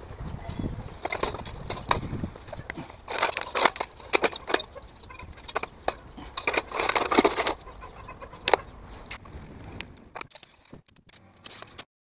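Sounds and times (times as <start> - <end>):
metal spray guns clinking: 0.9 - 2.1, 2.9 - 7.7, 8.4 - 8.7, 10.2 - 11.8.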